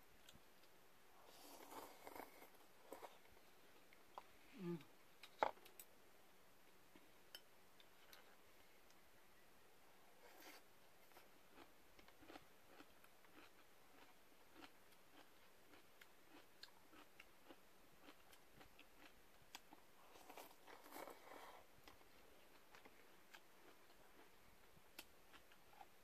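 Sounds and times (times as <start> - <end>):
slurping and chewing noodles: 1.2 - 3.3, 10.2 - 24.4.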